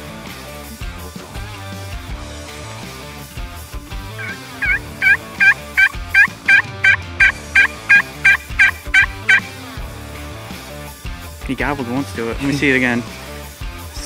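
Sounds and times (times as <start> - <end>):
turkey call gobbling notes: 4.1 - 9.6.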